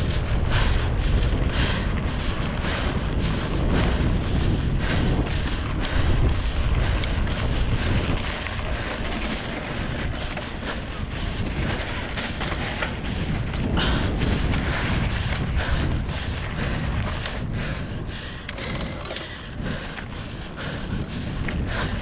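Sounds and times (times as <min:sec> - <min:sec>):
wind buffeting microphone: 0:00.0 - 0:22.0
scattered ticks: 0:05.2 - 0:13.6, 0:17.0 - 0:17.5, 0:18.1 - 0:22.0.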